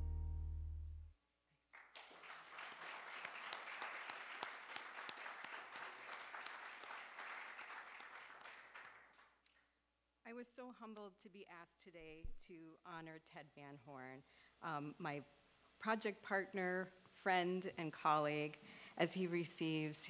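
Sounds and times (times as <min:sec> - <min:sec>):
many hands clapping: 0:01.6 - 0:09.7.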